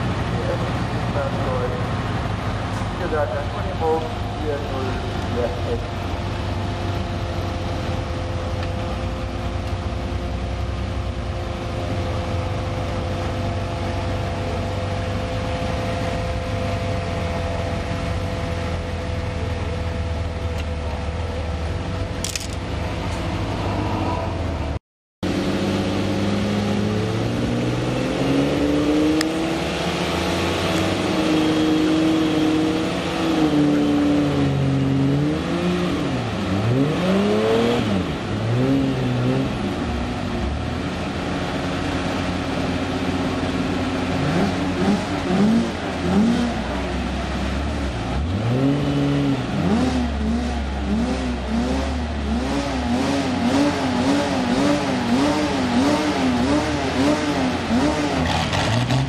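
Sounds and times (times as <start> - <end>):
engine throttle blips: 0.0 - 59.0
truck engine revving: 22.1 - 59.0.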